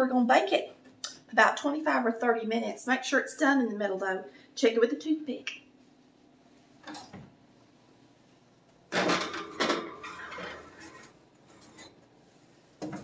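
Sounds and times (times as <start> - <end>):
metal pan clunk: 8.9 - 10.6
pan scraping on oven rack: 8.9 - 12.0.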